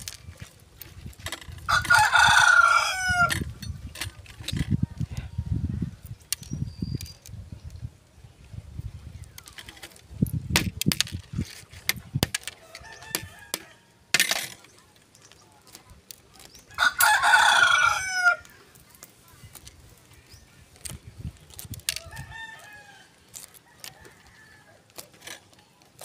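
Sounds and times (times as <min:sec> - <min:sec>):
rooster crowing: 0:01.7 - 0:03.3, 0:16.8 - 0:18.4, 0:22.0 - 0:24.8.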